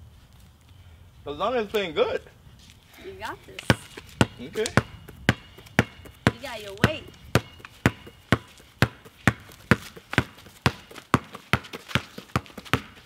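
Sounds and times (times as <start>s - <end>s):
basketball bouncing: 3.6s - 13.0s.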